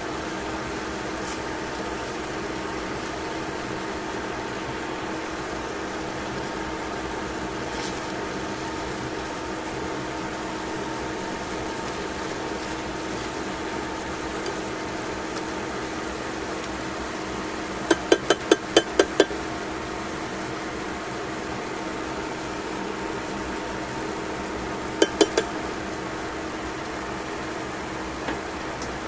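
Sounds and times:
chicken sizzling in a pan: 0.0 - 28.6
tongs clinking on a pan: 25.0 - 25.5.

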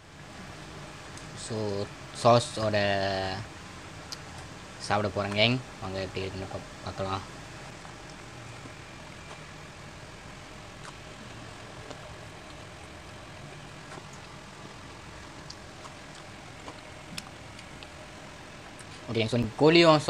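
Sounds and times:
low room hum: 0.0 - 20.0
crunching of person eating: 7.7 - 9.9, 10.5 - 18.0.

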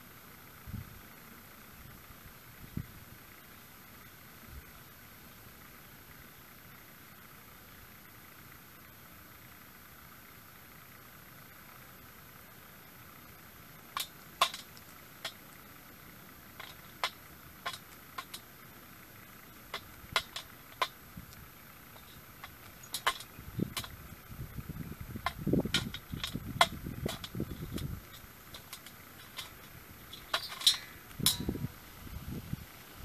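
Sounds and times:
low rumbling noise: 13.1 - 33.0
beaks tapping on metal pan: 14.0 - 15.4, 16.6 - 18.4, 19.7 - 21.0, 22.0 - 24.0, 25.3 - 31.6.

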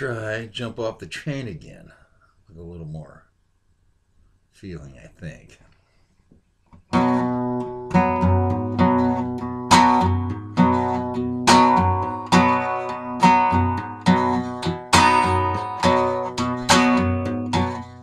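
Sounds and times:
acoustic guitar strumming: 6.9 - 18.0.

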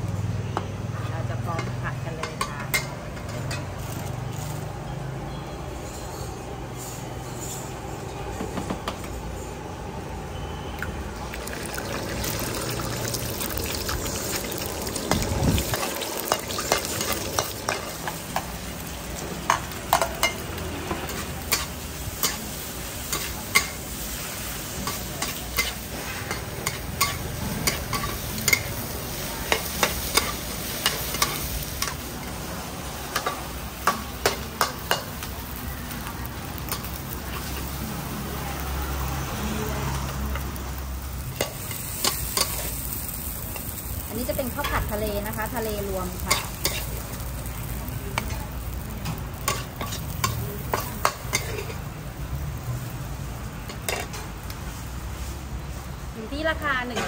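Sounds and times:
rice sizzling in wok: 0.0 - 8.1, 9.0 - 57.0
metal spatula clanking on wok: 15.0 - 18.6, 19.4 - 23.8, 24.8 - 28.8, 29.5 - 32.4, 33.1 - 35.3, 46.1 - 47.0, 48.1 - 51.9, 53.7 - 54.3.

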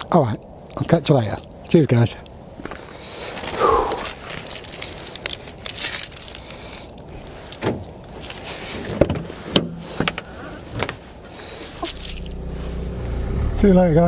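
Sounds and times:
rattling rustling handling noise: 3.4 - 12.9.

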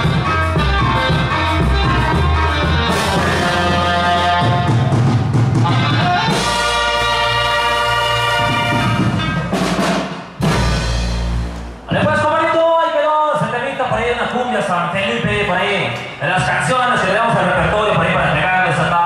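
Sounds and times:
upbeat dance music: 0.0 - 4.9.

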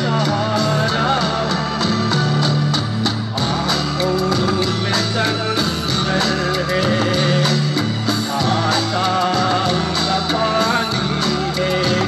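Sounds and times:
backing music with guitar and drums: 0.0 - 12.0
man singing into a microphone: 0.0 - 12.0.

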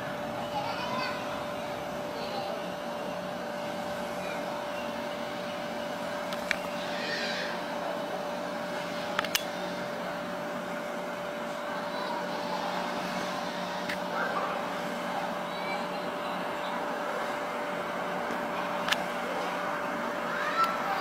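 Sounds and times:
constant hum: 0.0 - 21.0.

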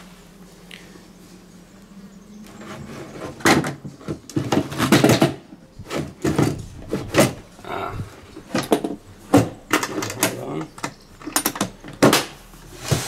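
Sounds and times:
electronic parts rattling in wooden box: 8.2 - 11.8.

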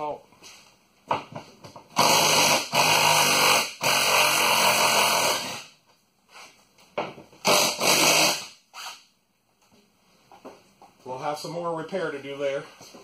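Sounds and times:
power tool whirring: 1.9 - 5.7, 7.4 - 9.0.

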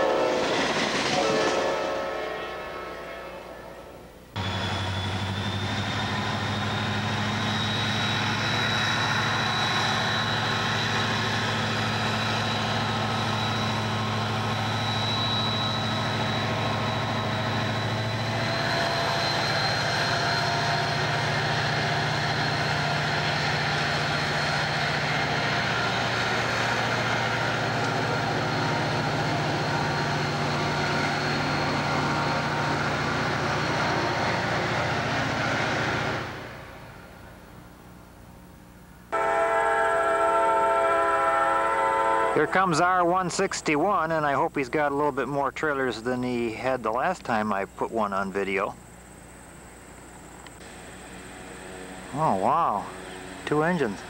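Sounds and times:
diesel locomotive engines: 0.0 - 54.0
thin high whine: 1.4 - 35.0, 47.3 - 54.0.

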